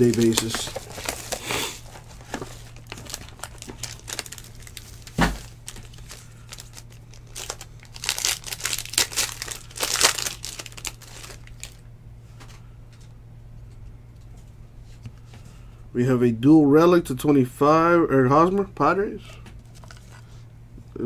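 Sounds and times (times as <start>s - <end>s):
foil pack crinkling and tearing: 0.0s - 11.8s.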